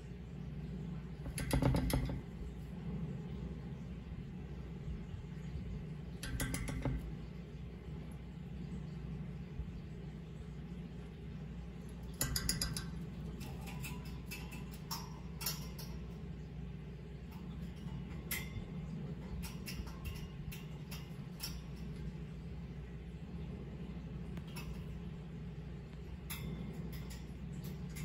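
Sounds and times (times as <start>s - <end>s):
steady low hum: 0.0s - 28.0s
bird feet tapping on wooden perch: 1.2s - 2.2s, 6.2s - 7.1s, 12.1s - 16.0s.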